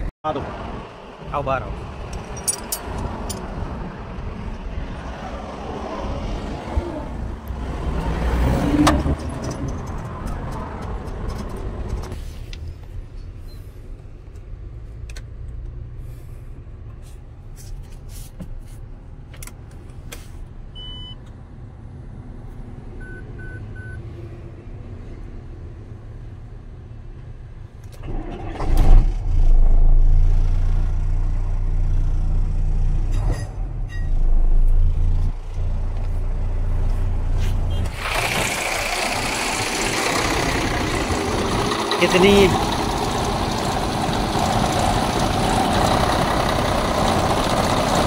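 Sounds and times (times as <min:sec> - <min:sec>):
dashboard warning beeps: 0:20.8 - 0:21.2, 0:23.0 - 0:24.0.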